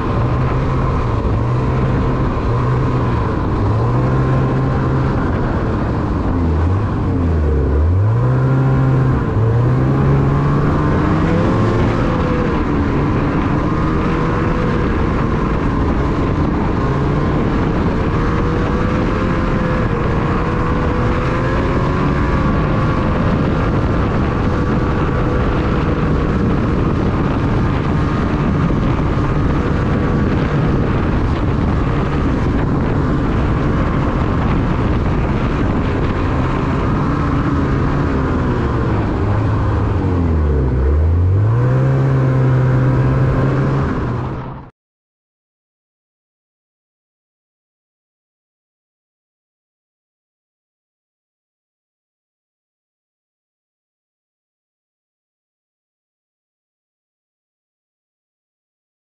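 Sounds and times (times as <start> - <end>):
snowmobile engine revving: 0.0 - 44.6.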